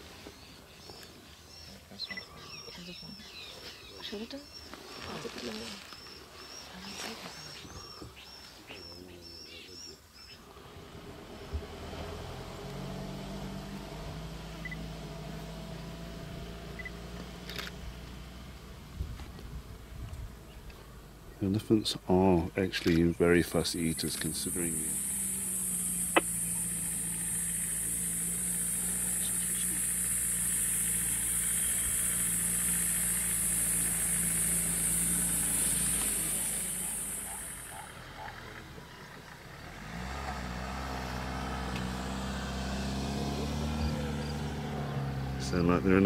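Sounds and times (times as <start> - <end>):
cicadas droning: 0.0 - 19.0, 19.8 - 46.0
vehicle engine idling: 0.0 - 46.0.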